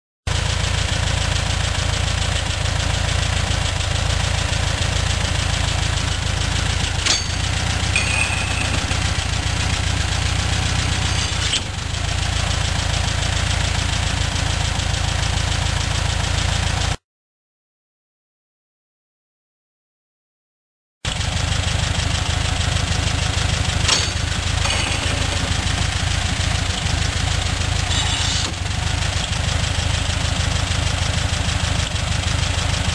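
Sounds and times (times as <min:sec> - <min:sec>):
engine idling: 0:00.3 - 0:17.0, 0:21.1 - 0:32.9
fan belt squeal: 0:06.4 - 0:12.7, 0:23.2 - 0:29.6.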